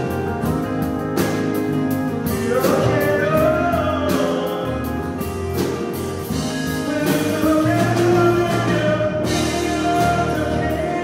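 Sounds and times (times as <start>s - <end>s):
bass: 0.0s - 11.0s
drum kit with cymbals: 0.0s - 11.0s
electric guitar: 0.0s - 11.0s
keyboard: 0.0s - 11.0s
man singing: 2.2s - 11.0s.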